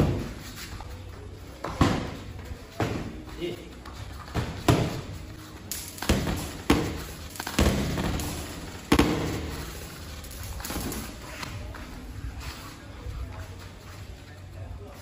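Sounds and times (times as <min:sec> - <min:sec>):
boxing glove punches thudding: 0:04.4 - 0:05.1, 0:06.0 - 0:09.6.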